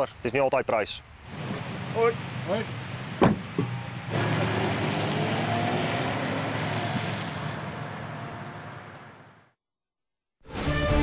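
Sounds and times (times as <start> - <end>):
car driving on wet road: 1.3 - 9.5.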